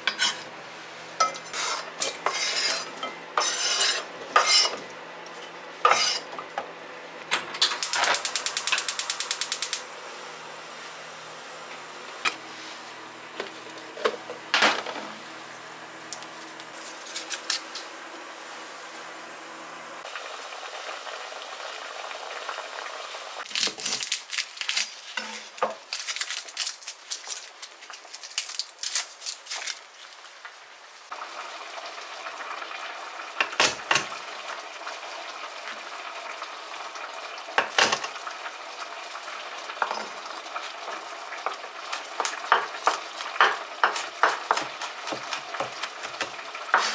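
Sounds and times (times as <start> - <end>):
pot simmering: 20.0 - 23.4, 31.1 - 46.9.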